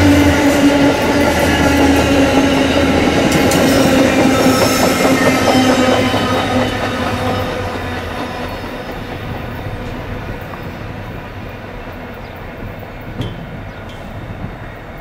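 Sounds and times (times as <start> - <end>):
train wheels rolling on rails: 0.0 - 15.0.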